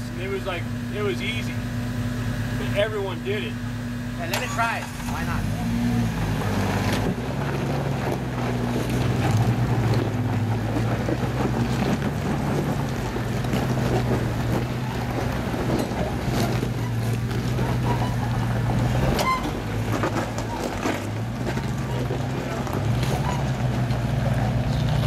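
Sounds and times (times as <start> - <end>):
vehicle engine running: 0.0 - 25.0.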